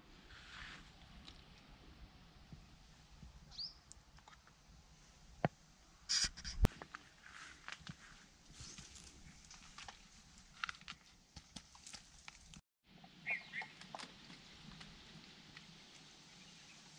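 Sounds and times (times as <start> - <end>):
faint birds calling: 13.2 - 14.4.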